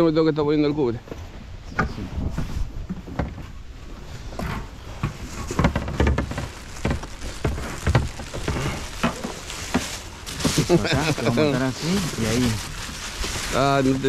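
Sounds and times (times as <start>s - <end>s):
wind buffeting microphone: 1.4s - 14.0s
gear knocking and rustling: 4.3s - 14.0s.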